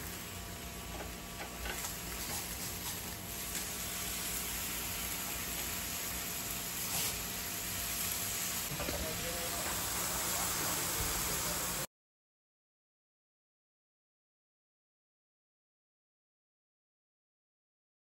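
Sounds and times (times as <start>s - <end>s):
chicken sizzling on grill: 0.0s - 11.9s
grill fan humming: 0.0s - 11.9s.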